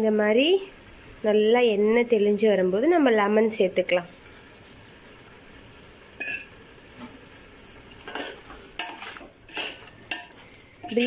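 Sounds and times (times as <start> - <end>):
gravy sizzling in a pot: 0.0 - 11.0
utensil scraping a pot: 8.0 - 11.0.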